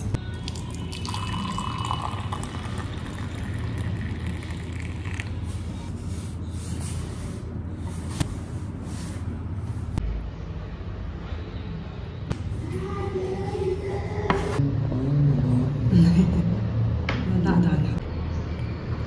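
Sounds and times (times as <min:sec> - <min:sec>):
steady low hum: 0:00.0 - 0:18.4
tea pouring into a ceramic cup: 0:00.3 - 0:05.5.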